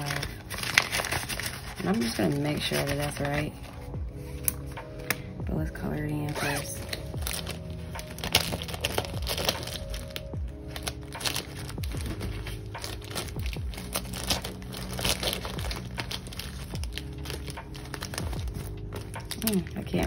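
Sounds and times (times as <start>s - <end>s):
soft background music: 0.0s - 20.0s
plastic markers crinkling and clicking: 6.3s - 20.0s.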